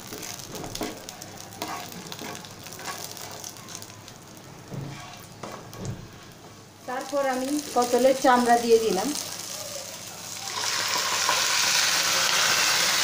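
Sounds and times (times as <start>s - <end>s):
wooden spatula knocking and scraping: 0.0s - 1.0s, 4.6s - 6.2s
spices sizzling in hot oil: 0.0s - 13.0s.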